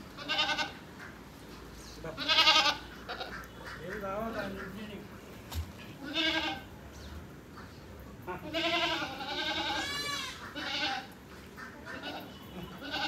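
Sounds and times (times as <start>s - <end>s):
goats bleating: 0.2s - 0.8s, 2.0s - 3.6s, 6.0s - 6.7s, 8.2s - 11.2s, 11.8s - 13.0s.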